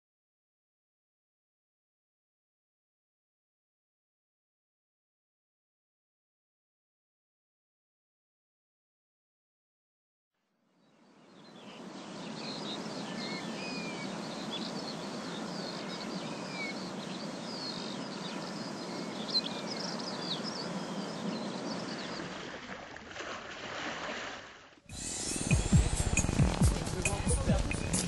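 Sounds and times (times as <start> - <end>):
birds chirping: 10.8 - 23.0, 25.0 - 28.0
low noisy rumble: 25.0 - 28.0.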